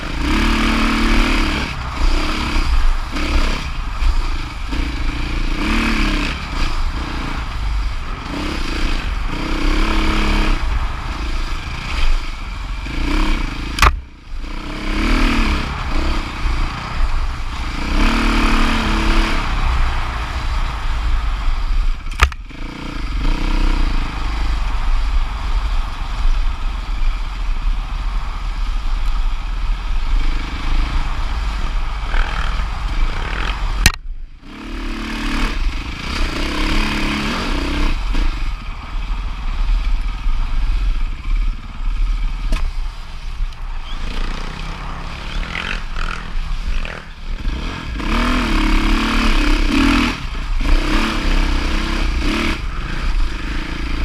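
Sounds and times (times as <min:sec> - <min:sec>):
dirt bike engine revving: 0:00.0 - 0:25.7, 0:30.0 - 0:42.5, 0:43.3 - 0:54.0
wind rumble on microphone: 0:00.0 - 0:54.0.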